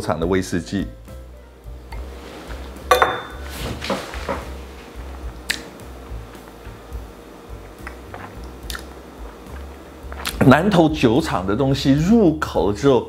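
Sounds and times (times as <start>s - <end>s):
quiet background music: 0.0s - 13.0s
glass clinking on table: 2.9s - 3.4s.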